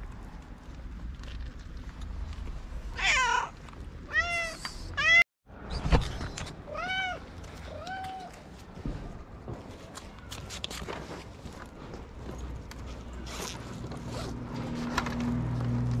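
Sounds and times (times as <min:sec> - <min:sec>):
cats meowing: 0:03.0 - 0:05.2, 0:06.7 - 0:08.4.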